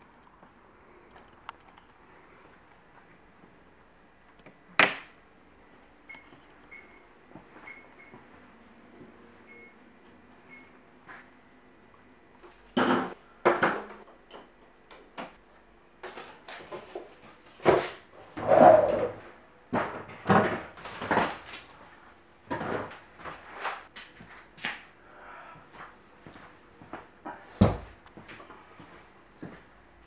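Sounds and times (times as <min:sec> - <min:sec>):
objects knocking and scraping: 0:16.0 - 0:21.6.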